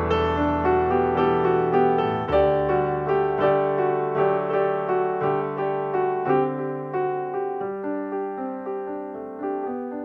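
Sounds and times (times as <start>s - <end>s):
piano music: 0.0s - 10.0s.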